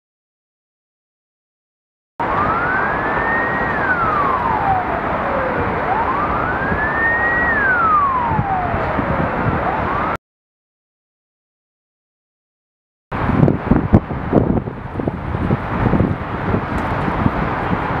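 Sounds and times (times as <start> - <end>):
emergency siren wailing: 2.2 - 10.2.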